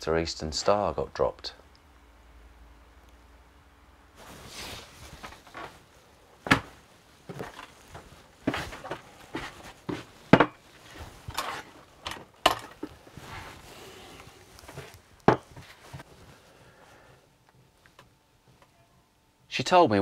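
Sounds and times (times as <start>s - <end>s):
footsteps: 4.2s - 16.4s.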